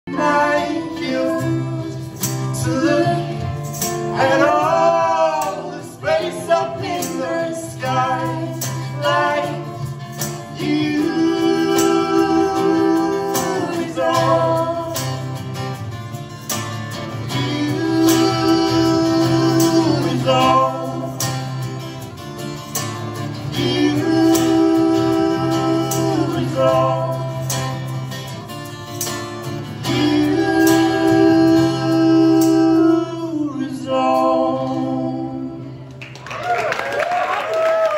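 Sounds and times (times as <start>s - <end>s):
man and woman singing in harmony: 0.1s - 15.4s, 17.1s - 21.8s, 23.2s - 27.9s, 29.7s - 36.0s
strummed acoustic guitar: 0.1s - 35.2s
tambourine: 6.8s - 32.9s.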